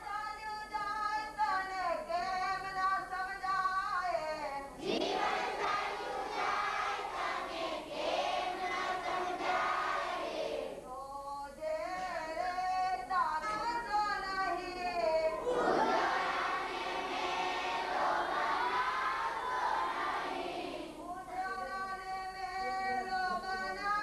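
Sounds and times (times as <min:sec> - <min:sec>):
children singing in unison: 0:04.8 - 0:10.9, 0:15.3 - 0:21.7.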